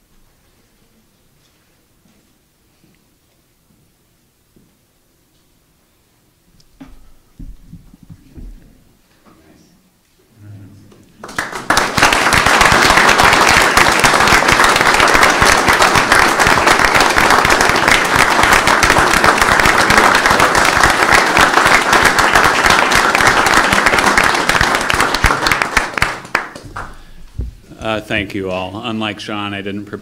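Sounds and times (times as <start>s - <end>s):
crowd applauding: 11.2s - 27.2s.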